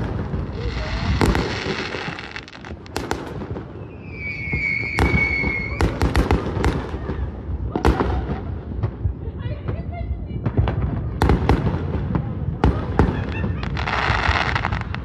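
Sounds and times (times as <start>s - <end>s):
fireworks bangs and pops: 0.0s - 15.0s
fireworks crackling: 0.0s - 15.0s
high whistle: 3.8s - 5.8s.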